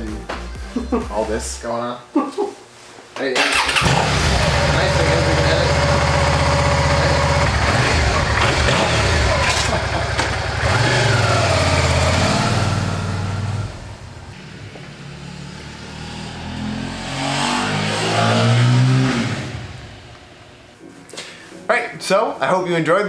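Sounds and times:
motorcycle engine revving: 0:03.4 - 0:20.2.

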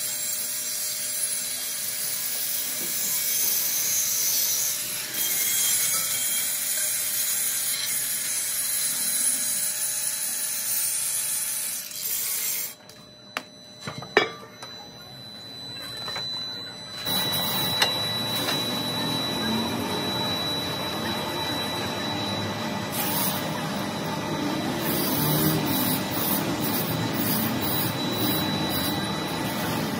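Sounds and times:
angle grinder grinding metal: 0:00.0 - 0:29.9.

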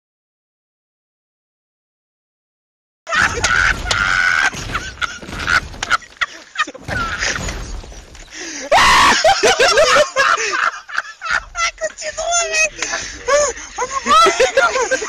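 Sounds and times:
loud cry: 0:03.1 - 0:05.6, 0:08.7 - 0:10.2, 0:11.3 - 0:15.0
rubble crunching: 0:03.1 - 0:10.0.

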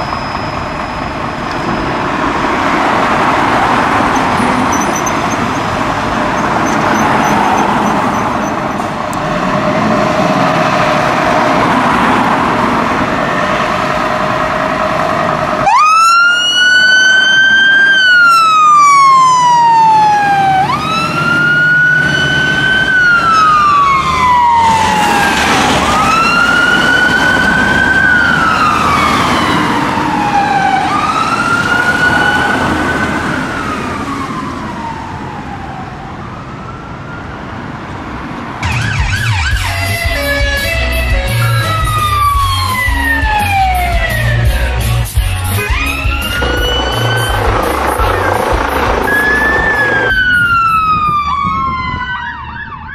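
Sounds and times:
fire engine siren wailing: 0:00.0 - 0:52.9
diesel engine running: 0:38.6 - 0:50.7.

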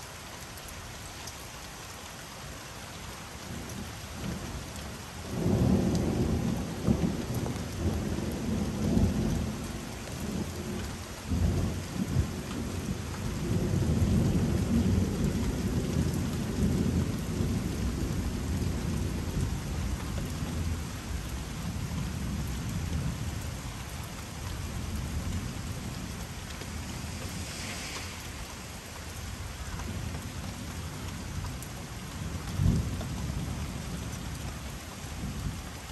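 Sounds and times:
steady rain: 0:00.0 - 0:35.9
thunder rumbling: 0:24.6 - 0:31.3.

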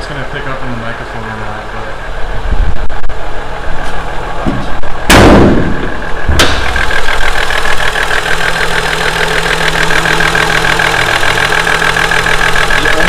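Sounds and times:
engine idling with clatter: 0:00.0 - 0:13.0.

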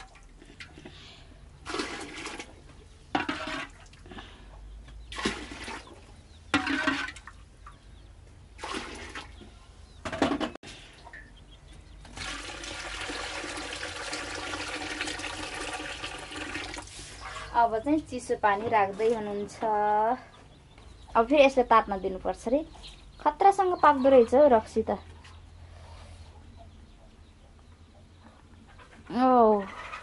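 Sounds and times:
water sloshing and splashing: 0:00.0 - 0:00.8, 0:01.6 - 0:04.0, 0:05.1 - 0:07.8, 0:08.6 - 0:09.5
water pouring into metal pot: 0:01.6 - 0:02.5, 0:12.1 - 0:17.0.

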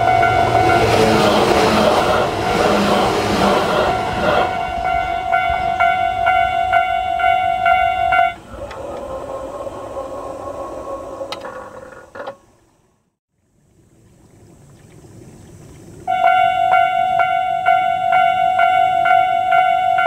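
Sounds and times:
level-crossing alarm ringing: 0:00.0 - 0:11.3, 0:16.1 - 0:20.0
steady mechanical hum: 0:07.5 - 0:18.2.

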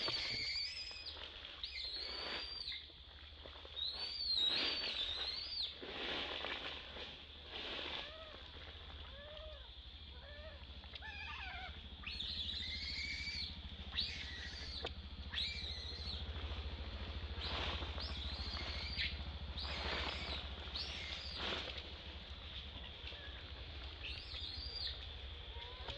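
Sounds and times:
baby monkey screeching: 0:00.0 - 0:02.8, 0:10.2 - 0:16.2, 0:17.4 - 0:21.6
baby monkey cooing: 0:09.1 - 0:16.2.

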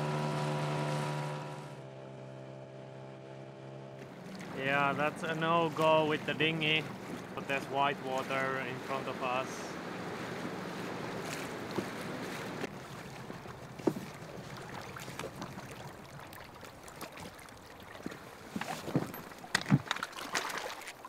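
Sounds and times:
river rapids rushing: 0:04.5 - 0:12.7.

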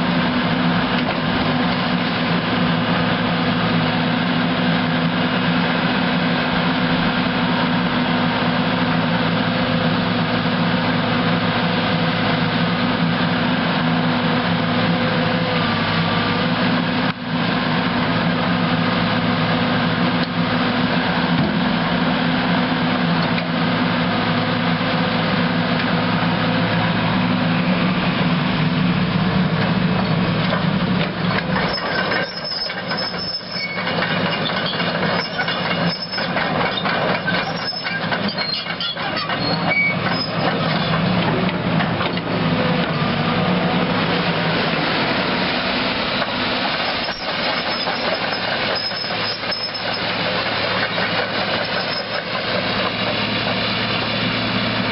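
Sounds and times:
excavator diesel engine running: 0:00.0 - 0:54.9
high squeaks: 0:31.6 - 0:36.4, 0:37.2 - 0:41.0, 0:46.9 - 0:50.2, 0:50.9 - 0:52.4.

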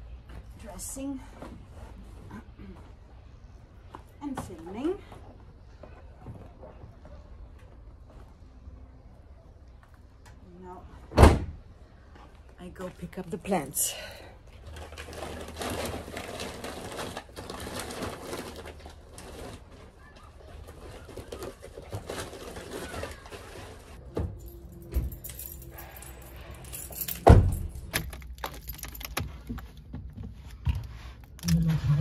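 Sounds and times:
rustling and clinking of handling: 0:12.1 - 0:31.4.

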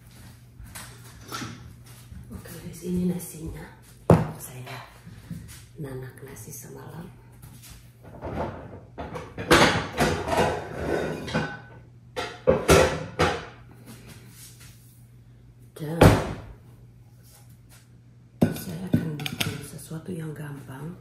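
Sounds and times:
pots and pans clattering: 0:08.1 - 0:13.6.

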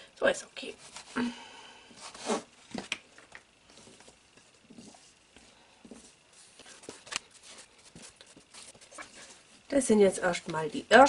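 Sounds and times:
hands and knife working dough: 0:03.6 - 0:10.8.

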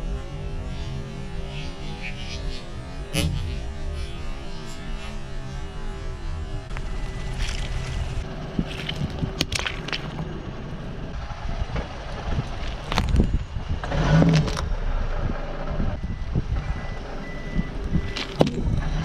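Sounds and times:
car engine running: 0:00.0 - 0:19.0
tyres rumbling on asphalt: 0:02.7 - 0:19.0
objects cracking under tyre: 0:06.7 - 0:10.9, 0:11.8 - 0:14.7, 0:18.1 - 0:18.8.

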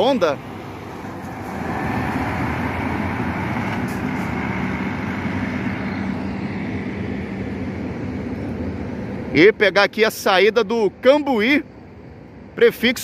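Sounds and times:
diesel coach engine droning: 0:00.0 - 0:13.0.

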